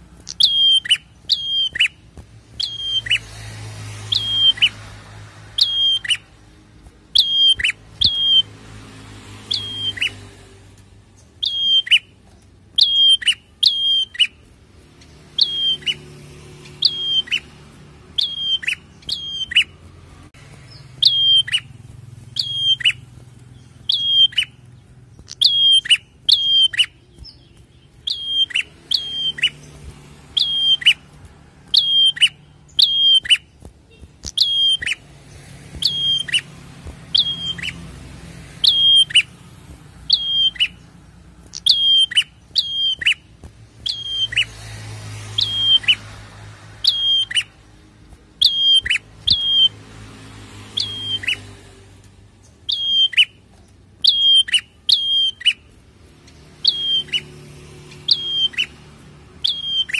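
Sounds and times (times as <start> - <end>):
bird calling sharp high notes: 0.2 - 3.3, 4.1 - 4.8, 5.6 - 6.4, 7.2 - 8.5, 9.5 - 10.2, 11.4 - 12.2, 12.8 - 14.4, 15.3 - 19.8, 20.7 - 23.1, 23.8 - 35.1, 35.8 - 36.5, 37.1 - 37.9, 38.6 - 39.4, 40.0 - 40.8, 41.5 - 44.6, 45.4 - 46.0, 46.8 - 47.6, 48.4 - 49.8, 52.6 - 53.4, 54.0 - 55.7, 56.6 - 57.4, 58.0 - 58.8, 59.4 - 59.9.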